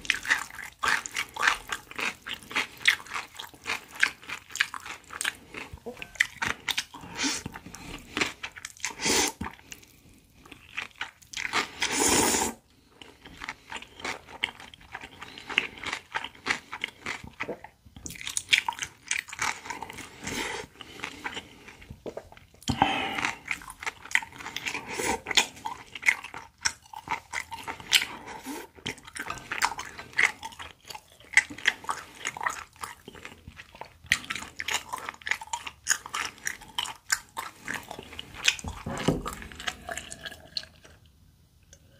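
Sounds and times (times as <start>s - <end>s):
crunching and wet chewing: 0.0s - 12.1s, 12.7s - 41.1s
slurping noodles: 5.3s - 9.6s, 11.6s - 12.6s.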